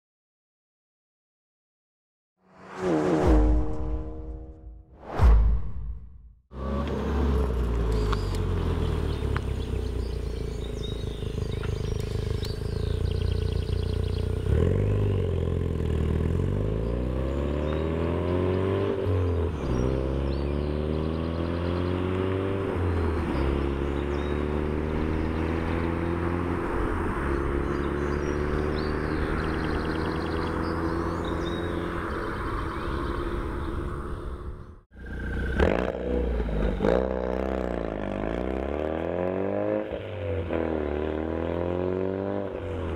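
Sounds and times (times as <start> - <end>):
car engine accelerating: 6.5 - 42.9.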